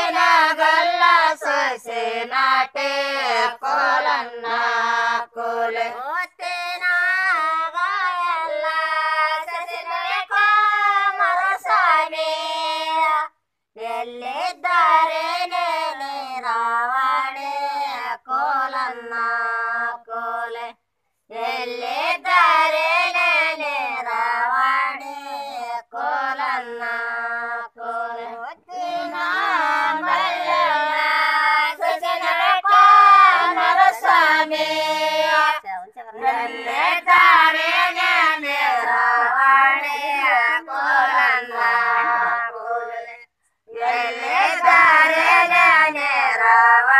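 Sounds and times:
women singing folk song: 0.0 - 46.9.

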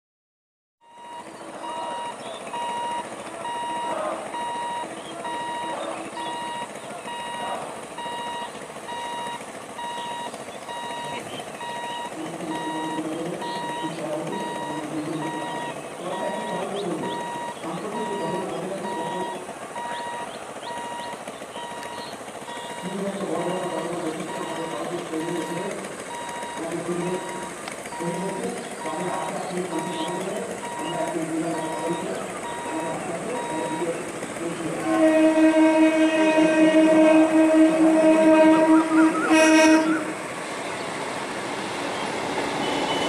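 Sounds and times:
electronic beep: 0.8 - 33.9
low voices: 1.0 - 8.8, 10.0 - 41.2.

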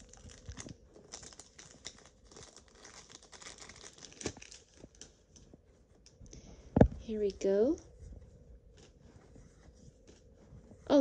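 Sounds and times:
plastic packaging crinkling: 0.0 - 6.2.

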